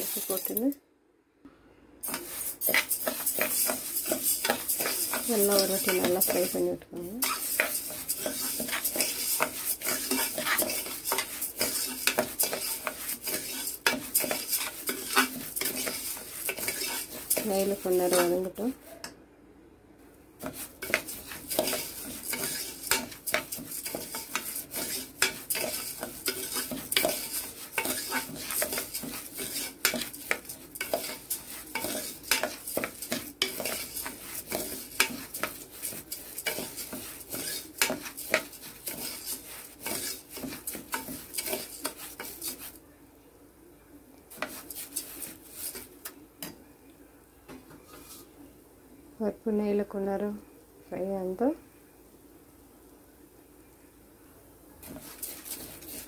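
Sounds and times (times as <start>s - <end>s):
light sizzle: 0.0s - 0.8s, 2.0s - 19.2s, 20.0s - 56.0s
metal spoon scraping and clinking pot: 2.0s - 6.6s, 7.2s - 18.6s, 20.4s - 42.8s, 54.8s - 56.0s.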